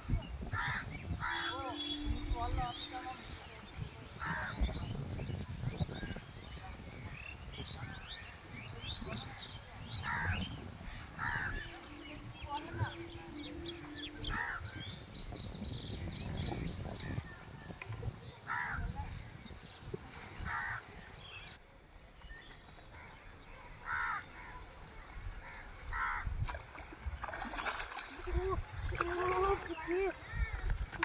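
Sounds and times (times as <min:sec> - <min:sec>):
crow cawing: 0:23.8 - 0:24.5, 0:25.5 - 0:26.3.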